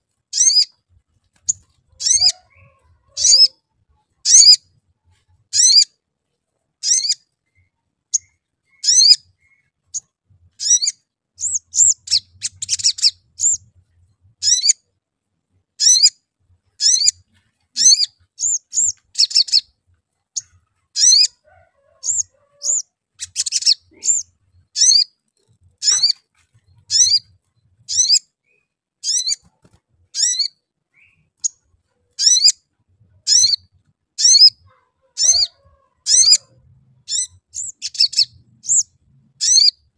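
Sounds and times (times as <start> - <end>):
bird high chirps: 0.3 - 0.8, 1.4 - 6.0, 6.8 - 14.9, 15.8 - 39.9
bird rapid chattering: 1.4 - 3.6, 10.6 - 13.7, 22.0 - 28.2, 33.3 - 36.5.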